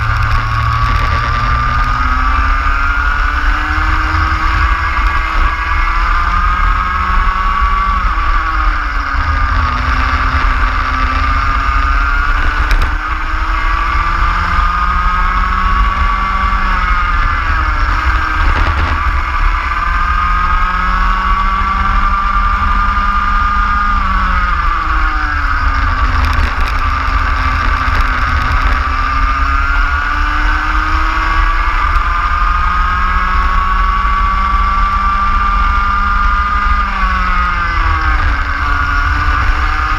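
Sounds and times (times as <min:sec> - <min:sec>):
racing kart engine: 0:00.0 - 0:39.9.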